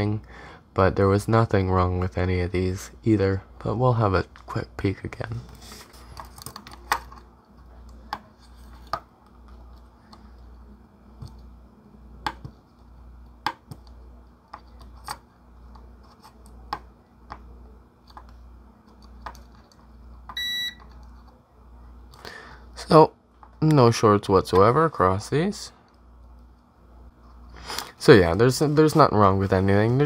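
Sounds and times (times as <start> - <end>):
multimeter continuity beep: 20.3 - 20.8.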